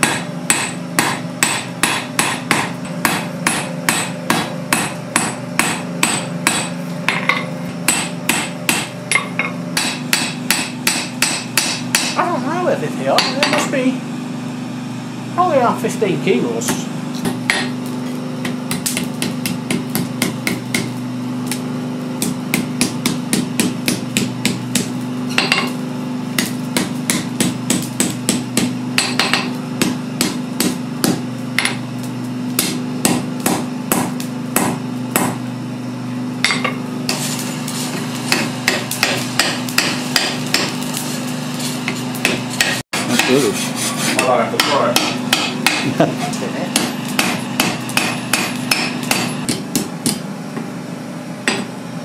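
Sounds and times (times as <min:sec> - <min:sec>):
hammer striking metal on anvil: 0:00.0 - 0:12.2, 0:13.1 - 0:13.7, 0:16.7 - 0:21.6, 0:22.2 - 0:25.8, 0:26.4 - 0:31.8, 0:32.6 - 0:35.4, 0:36.4 - 0:37.2, 0:38.3 - 0:41.0, 0:41.8 - 0:43.4, 0:44.1 - 0:46.0, 0:46.7 - 0:50.2, 0:51.4 - 0:51.7
steady low hum: 0:00.0 - 0:52.0.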